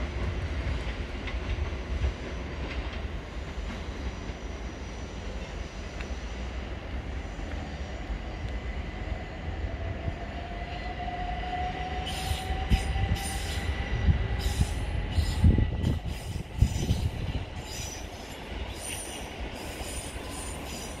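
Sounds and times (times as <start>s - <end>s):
train wheels rumbling: 0.0s - 21.0s
faint steady squeal: 10.6s - 21.0s.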